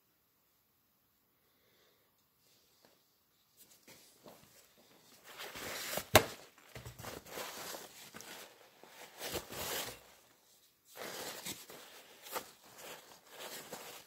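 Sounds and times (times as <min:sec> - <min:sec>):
paper towel crumpling: 0:05.0 - 0:10.2, 0:10.9 - 0:14.0.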